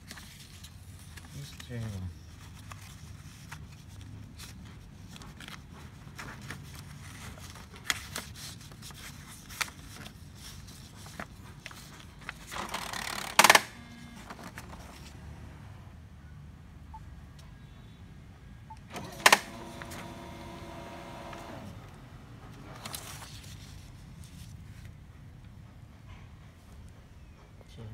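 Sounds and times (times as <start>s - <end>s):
printer rattle: 12.5s - 14.6s, 18.9s - 21.7s
printer clicks: 18.9s - 21.6s
laser printer hum: 19.5s - 21.7s.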